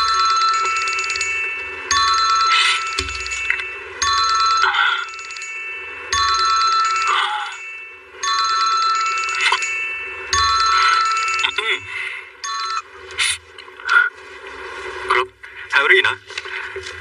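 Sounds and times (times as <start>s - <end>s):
smartphone ringtone: 0.0s - 12.9s.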